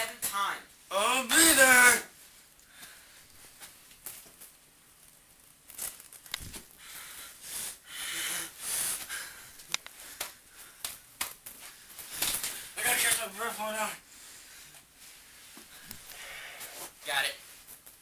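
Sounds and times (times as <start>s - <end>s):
rustling: 2.1s - 7.8s, 8.6s - 18.0s
person breathing hard: 6.7s - 11.1s, 14.0s - 17.0s.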